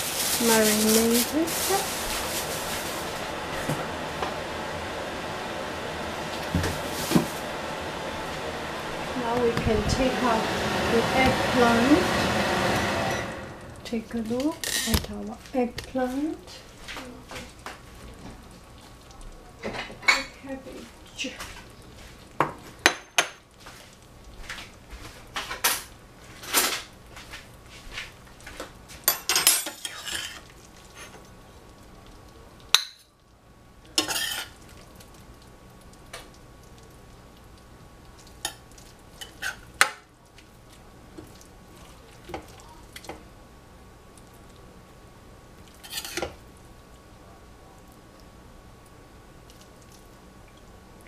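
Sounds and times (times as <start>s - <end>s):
metal utensils clinking on a pan: 29.1s - 30.4s.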